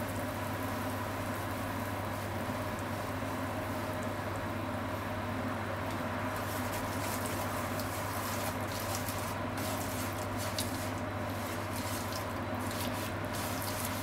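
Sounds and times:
steady low hum: 3.2s - 14.0s
chopsticks clicking and scraping pan: 6.6s - 14.0s.

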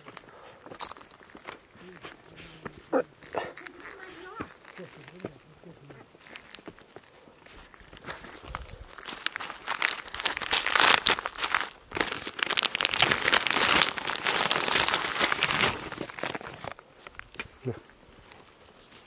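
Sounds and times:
plastic bag crinkling: 0.0s - 7.0s, 7.6s - 17.4s.

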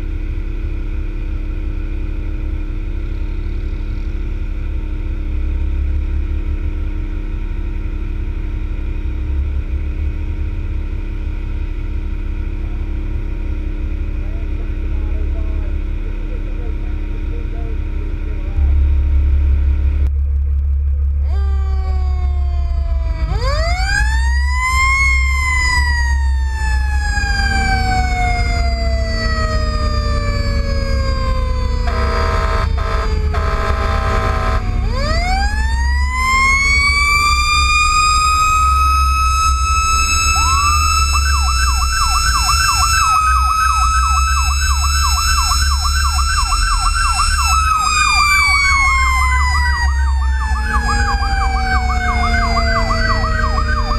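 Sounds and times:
truck engine and tyres rumbling: 0.0s - 53.9s
fire engine siren wailing: 21.2s - 53.9s
fast electronic yelp siren: 21.3s - 53.9s
air horn: 31.8s - 34.7s.

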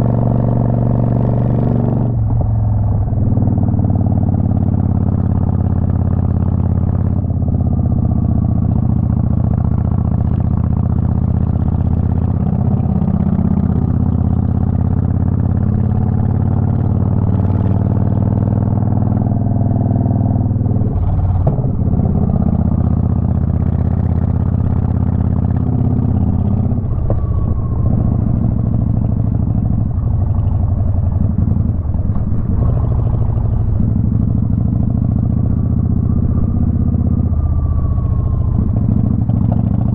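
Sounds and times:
motorcycle engine running: 0.0s - 39.9s.

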